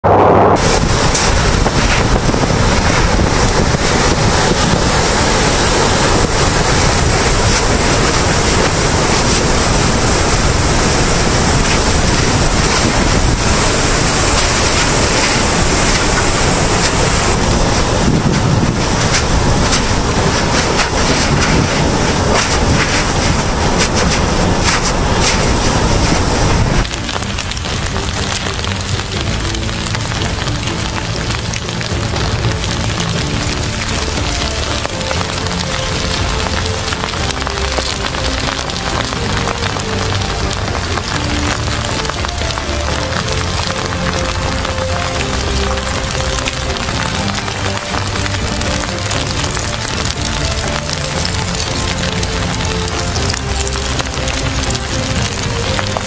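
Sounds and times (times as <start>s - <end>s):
steady rushing noise: 0.0s - 56.0s
faint crackles: 11.3s - 56.0s.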